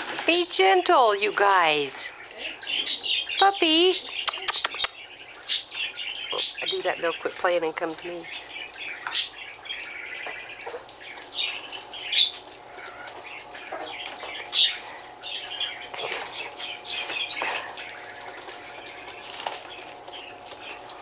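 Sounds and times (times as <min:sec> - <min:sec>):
claws scrabbling on hard floor: 0:15.9 - 0:21.0.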